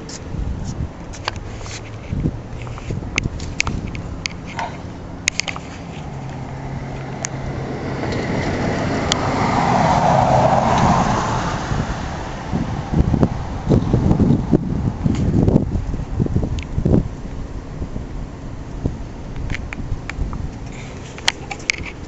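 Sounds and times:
steady low hum: 0:00.0 - 0:09.7, 0:11.4 - 0:22.0
car passing by: 0:04.5 - 0:15.5.

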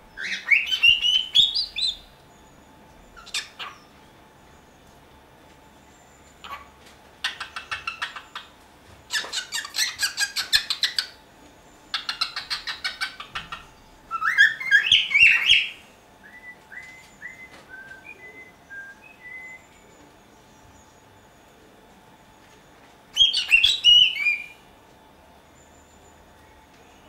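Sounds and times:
cockatiel chattering: 0:06.4 - 0:08.5, 0:09.1 - 0:11.2, 0:11.9 - 0:15.7
soft whistled notes: 0:16.2 - 0:19.9.

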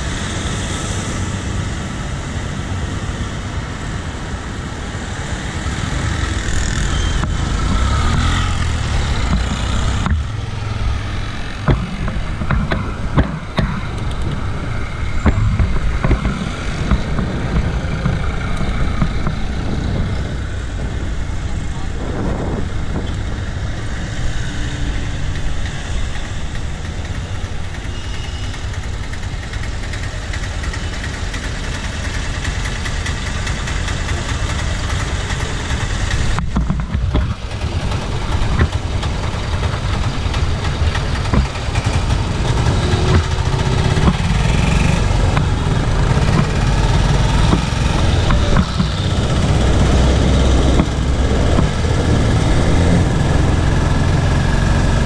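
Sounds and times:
street traffic rumble: 0:00.0 - 0:55.0
moving bicycle riding noise: 0:05.0 - 0:55.0.

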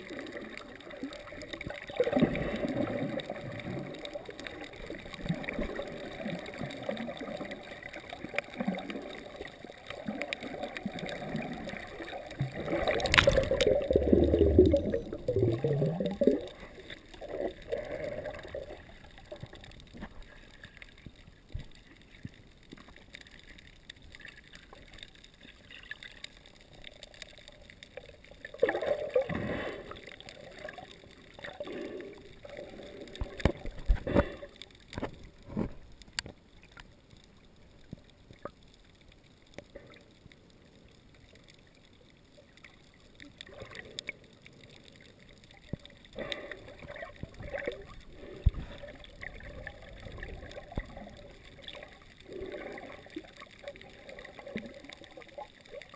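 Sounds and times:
bubbling water: 0:00.0 - 0:36.8, 0:41.2 - 0:55.9
water sloshing and gurgling: 0:00.0 - 0:55.9.

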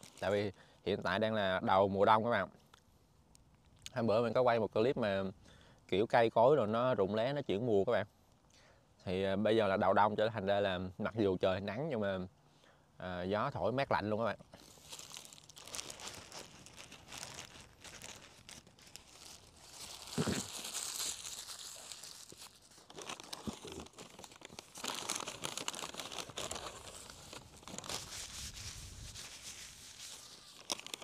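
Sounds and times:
paper wrapping crinkling: 0:00.0 - 0:00.4, 0:14.6 - 0:31.0.

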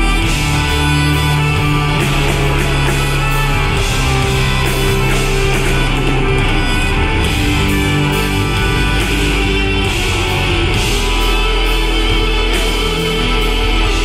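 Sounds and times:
live rock band playing: 0:00.0 - 0:14.0.

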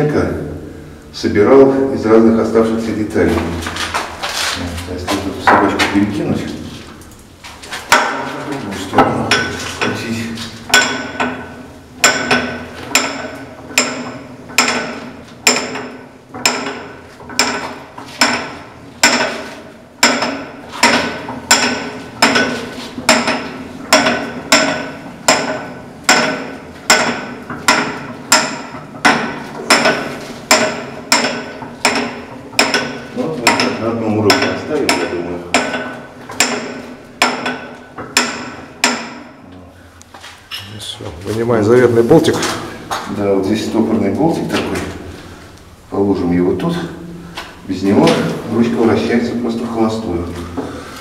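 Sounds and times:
metal hoist mechanism clanking: 0:07.6 - 0:39.4.

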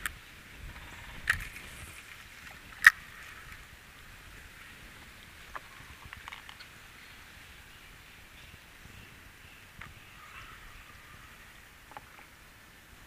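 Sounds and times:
faint outdoor hiss: 0:00.0 - 0:13.0
faint ticks: 0:11.8 - 0:12.4.

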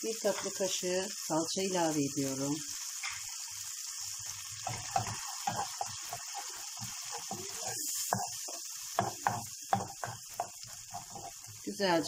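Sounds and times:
food sizzling in a frying pan: 0:00.0 - 0:12.0
wooden spoon scraping a pan: 0:04.6 - 0:11.8.

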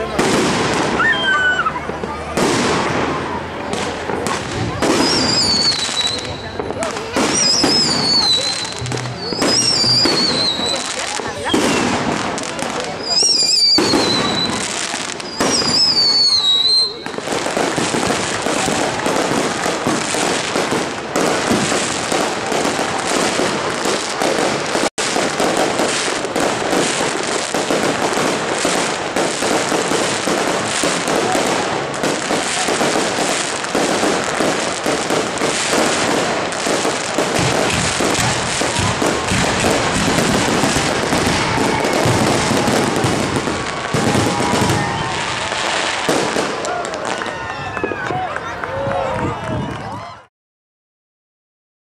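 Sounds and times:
fireworks bursting and crackling: 0:00.0 - 0:49.6.

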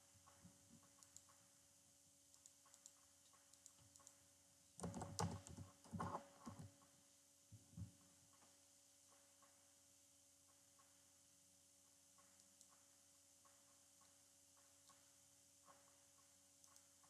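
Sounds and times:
keyboard typing: 0:04.8 - 0:06.7.

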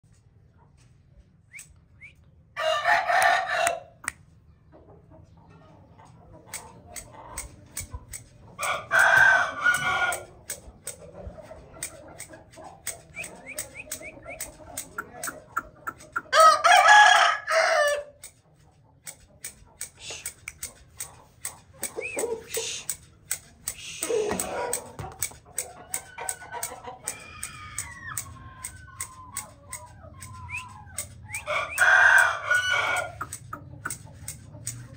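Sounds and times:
rooster crowing: 0:02.6 - 0:04.0, 0:08.6 - 0:10.3, 0:16.3 - 0:18.2, 0:25.9 - 0:29.2, 0:31.3 - 0:33.3
soft clucks: 0:03.1 - 0:16.4, 0:17.9 - 0:34.9
quick clicking: 0:06.5 - 0:09.1, 0:10.1 - 0:11.1, 0:11.8 - 0:16.3, 0:19.0 - 0:31.9, 0:33.0 - 0:34.9.

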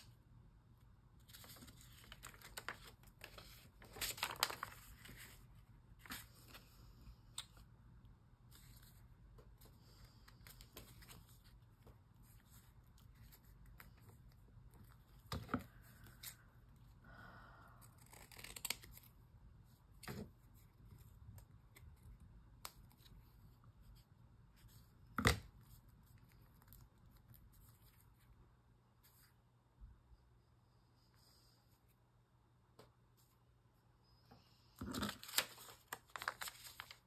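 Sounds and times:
paper rustling: 0:01.2 - 0:06.8, 0:34.8 - 0:37.0.

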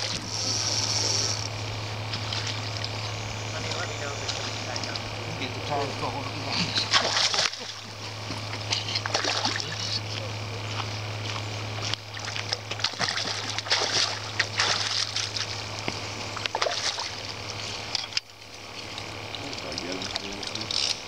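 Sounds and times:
steady low hum: 0:00.0 - 0:21.0
fish splashing at water surface: 0:06.5 - 0:10.0, 0:11.9 - 0:17.9.

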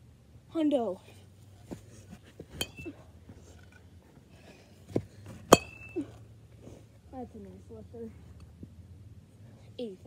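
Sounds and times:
bat striking ball metallic ping: 0:02.6 - 0:02.9, 0:05.5 - 0:06.0.

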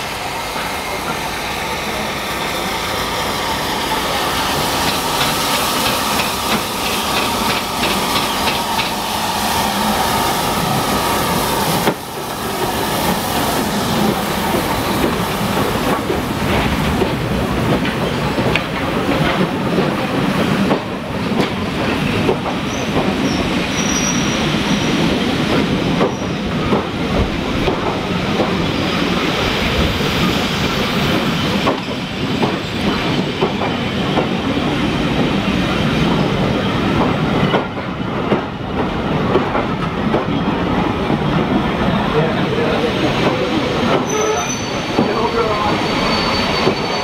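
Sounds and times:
train wheels rumbling on rails: 0:00.0 - 0:47.0
high wheel squeal: 0:22.6 - 0:25.0, 0:44.0 - 0:47.0.

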